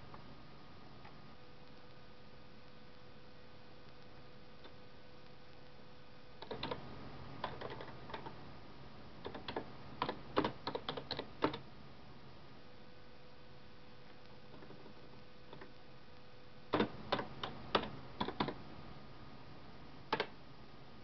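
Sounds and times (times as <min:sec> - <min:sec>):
faint steady hum: 0:00.0 - 0:21.0
keyboard key clicks: 0:06.4 - 0:06.8.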